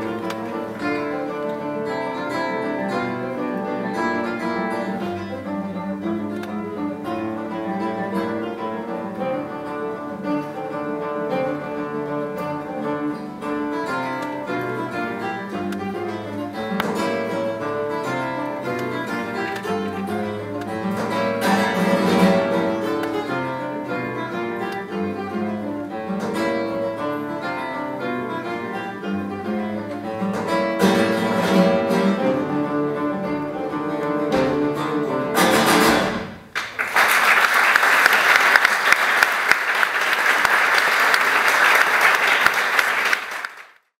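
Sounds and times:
acoustic guitar duet: 0.0s - 36.7s
audience applauding: 36.5s - 43.9s.

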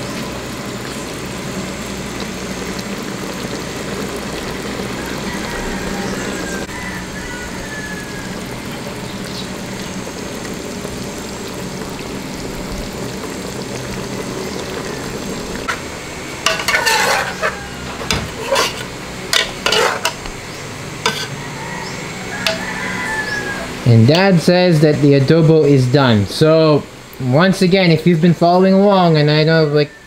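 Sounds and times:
pot simmering with a hiss: 0.0s - 30.0s
metal ladle clinking against pot: 16.5s - 20.2s.

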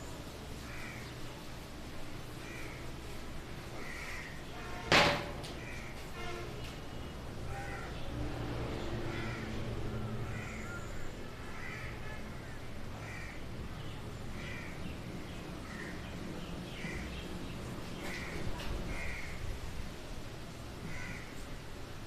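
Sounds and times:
crows cawing: 0.6s - 1.1s, 2.4s - 2.9s, 3.7s - 4.6s, 5.6s - 6.0s, 7.5s - 8.0s, 9.1s - 13.4s, 14.4s - 14.8s, 15.6s - 16.1s, 16.7s - 17.2s, 18.0s - 19.5s, 20.8s - 21.4s.

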